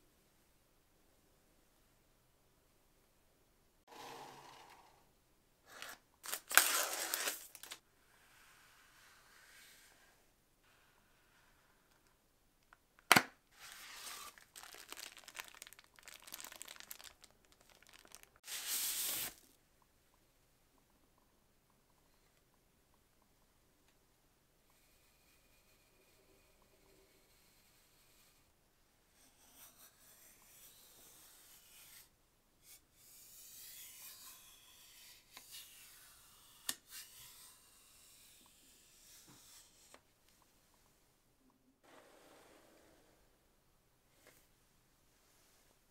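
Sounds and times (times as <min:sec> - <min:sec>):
packaging rustling and crinkling: 0:05.7 - 0:07.8, 0:13.6 - 0:19.5
packaging snapping: 0:05.7 - 0:07.8, 0:14.1 - 0:18.4
packaging tearing: 0:05.7 - 0:07.8, 0:13.6 - 0:19.5.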